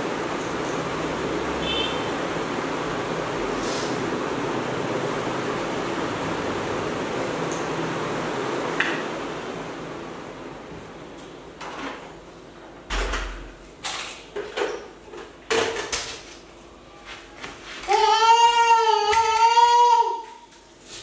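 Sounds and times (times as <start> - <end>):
broom sweeping hard floor: 3.6 - 4.0, 16.9 - 18.0, 20.3 - 21.0.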